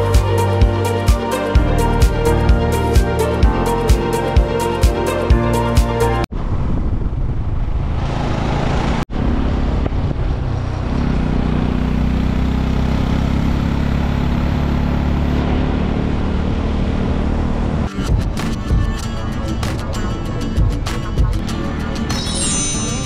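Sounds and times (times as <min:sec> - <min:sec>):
music: 0:00.0 - 0:06.3, 0:17.9 - 0:23.0
wind noise: 0:06.3 - 0:10.8
motorcycle engine running: 0:08.1 - 0:19.6.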